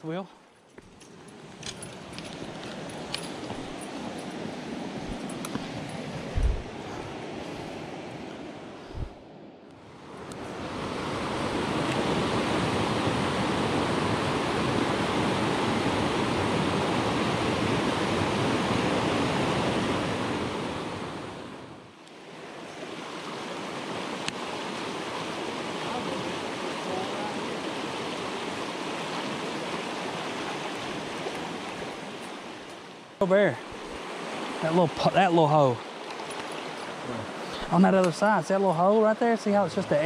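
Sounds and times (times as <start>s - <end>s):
creek rapids rushing: 10.0s - 21.4s, 22.2s - 40.0s.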